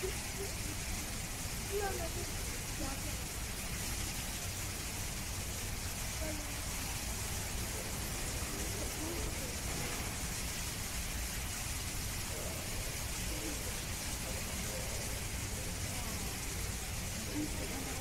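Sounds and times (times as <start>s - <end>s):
background hiss: 0.0s - 18.0s
faint distant voices talking: 0.0s - 18.0s.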